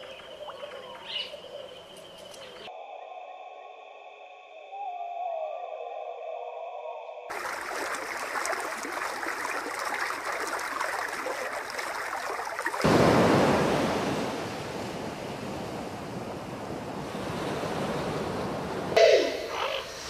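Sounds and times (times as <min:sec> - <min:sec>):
sea surf washing over rocks: 0:07.3 - 0:19.0
shallow stream rushing: 0:07.3 - 0:19.0.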